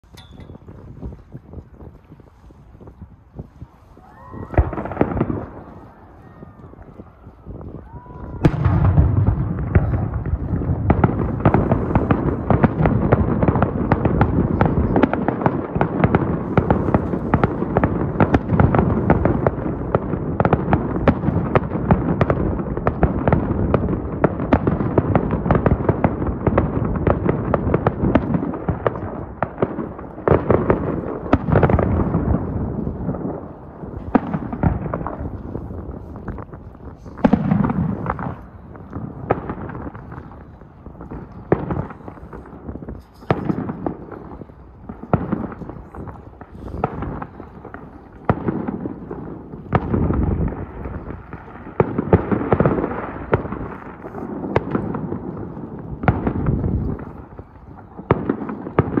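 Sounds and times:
fireworks booming and crackling: 0:00.0 - 0:59.0.

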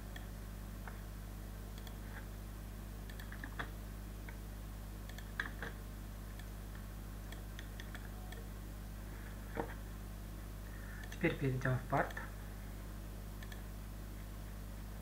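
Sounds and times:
low electrical hum: 0:00.0 - 0:15.0
computer mouse clicks: 0:01.8 - 0:02.2, 0:03.1 - 0:03.7, 0:05.1 - 0:05.8, 0:07.3 - 0:08.5, 0:11.0 - 0:11.2, 0:13.4 - 0:13.6.

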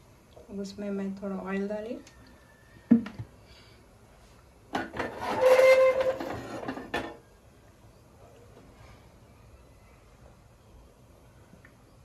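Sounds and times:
metal griddle scraping with squeal: 0:05.0 - 0:07.2.

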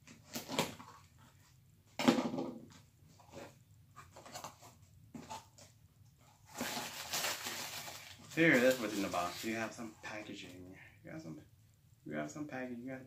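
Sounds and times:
packing material rustling and crunching: 0:06.4 - 0:09.9.

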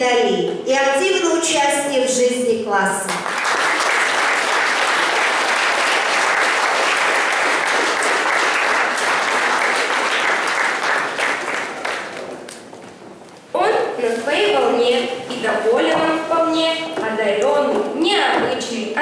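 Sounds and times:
audience applauding: 0:03.2 - 0:12.7.

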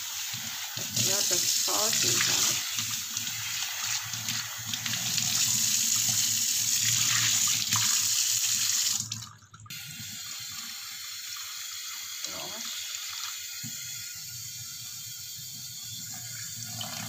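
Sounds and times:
tap water splashing into sink: 0:00.8 - 0:08.0.

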